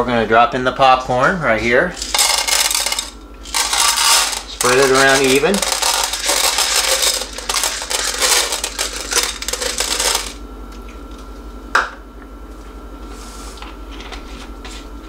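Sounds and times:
popcorn kernels rattling on plate: 2.0 - 10.4.

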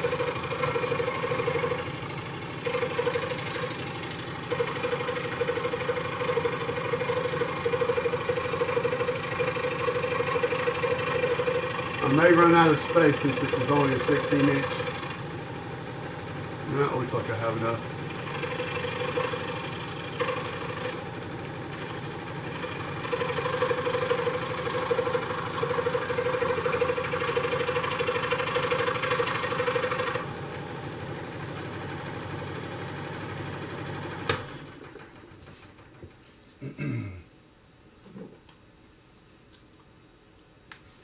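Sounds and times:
scroll saw cutting wood: 0.0 - 15.3, 16.8 - 30.3.

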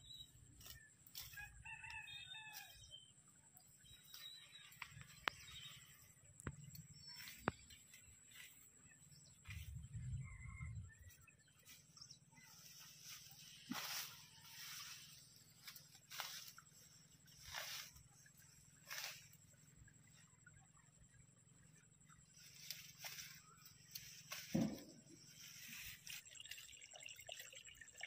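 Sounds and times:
distant rooster crowing: 1.3 - 2.9, 10.0 - 11.2.

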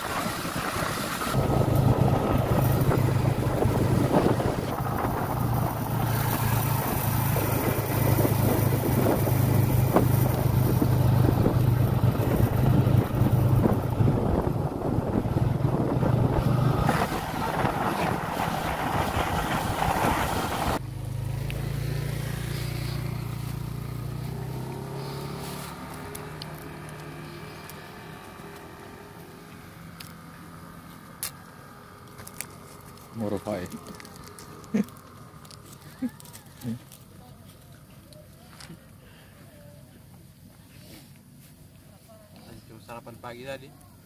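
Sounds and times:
wind rushing over microphone: 0.0 - 20.8
motorcycle engine running: 0.6 - 38.5
low hum: 1.1 - 28.3.

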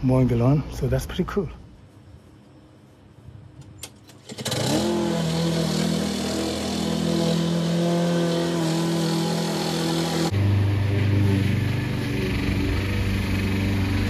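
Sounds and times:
lawn mower engine starting and running: 3.8 - 14.0.

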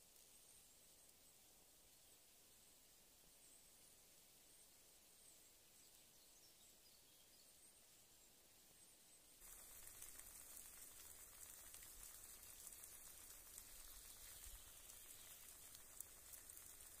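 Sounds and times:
eggs sizzling in a pan: 0.0 - 1.4, 9.4 - 17.0.

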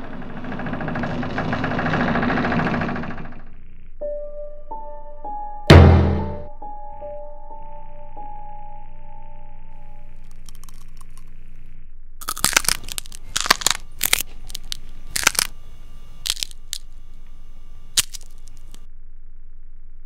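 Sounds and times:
low steady hum: 6.4 - 20.0
bones cracking: 10.2 - 11.3, 12.2 - 15.5, 16.2 - 16.9, 18.0 - 18.8.

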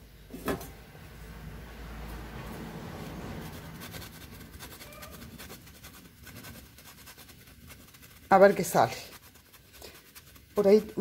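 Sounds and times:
cheese rasping on metal grater: 3.2 - 11.0.

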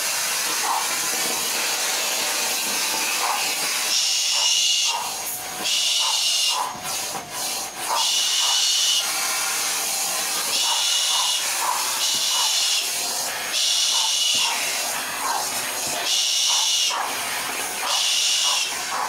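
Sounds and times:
vacuum cleaner running: 0.0 - 19.0
cockatoo hissing: 3.1 - 19.0.

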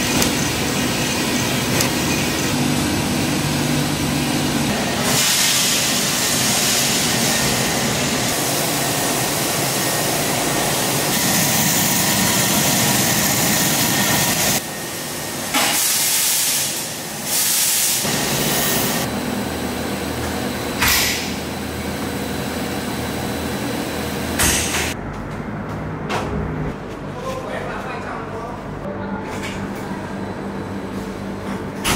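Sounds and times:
cooling fan rushing: 0.0 - 15.7, 16.6 - 31.9.

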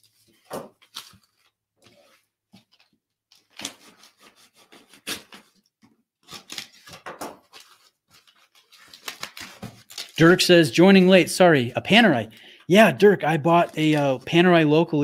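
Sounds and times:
cardboard packaging rustling: 0.0 - 5.6, 6.2 - 10.3, 13.4 - 14.6.

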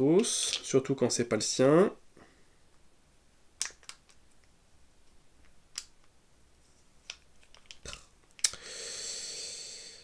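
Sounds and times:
battery cap being screwed on: 7.0 - 8.5.

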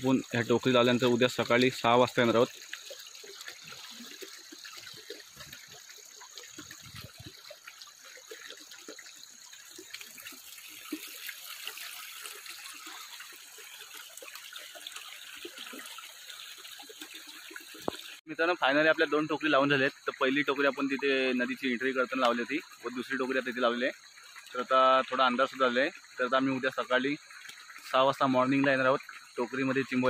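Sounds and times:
small splashes in water: 0.0 - 18.2
stream flowing and gurgling: 0.0 - 30.0.

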